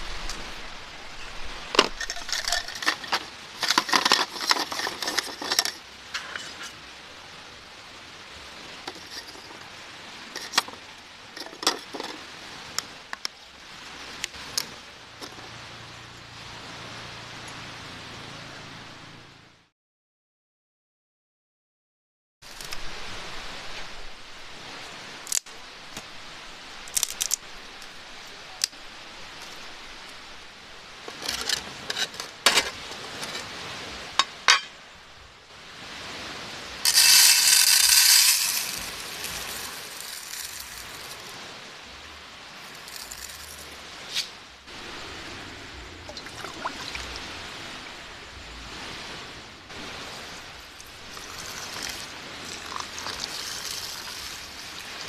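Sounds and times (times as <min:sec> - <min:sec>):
rice poured into metal tin: 0:36.9 - 0:41.3, 0:42.7 - 0:43.6, 0:52.7 - 0:54.4
water pouring into tin: 0:51.1 - 0:54.9.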